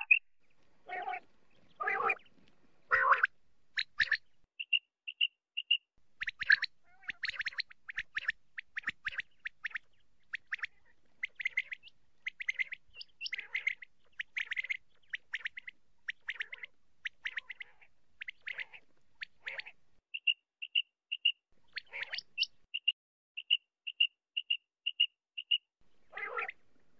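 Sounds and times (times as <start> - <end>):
quail calling: 0.0 - 0.2, 0.8 - 2.3, 2.9 - 26.6
short piping bird notes: 0.0 - 0.2.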